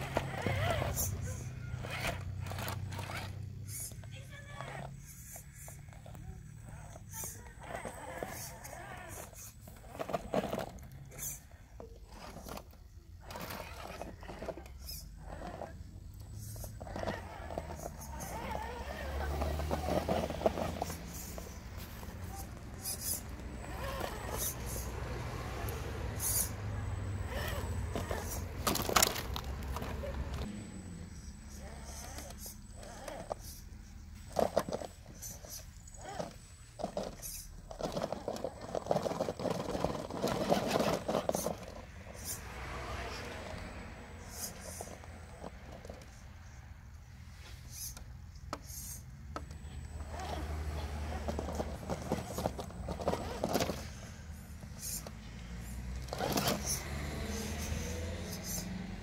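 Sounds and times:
tyres scraping over rock: 0:00.0 - 0:05.0, 0:07.6 - 0:11.4, 0:12.0 - 0:30.5, 0:34.3 - 0:43.6, 0:49.8 - 0:54.0
small electric motor humming: 0:00.0 - 0:43.6, 0:48.6 - 0:59.0.

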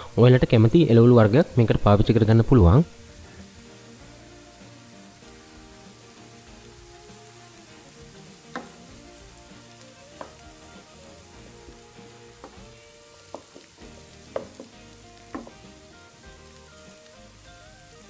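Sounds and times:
vegetables sizzling in pan: 0:00.0 - 0:18.0
spatula knocking against pan: 0:08.5 - 0:08.8, 0:13.3 - 0:13.7, 0:14.3 - 0:15.6.

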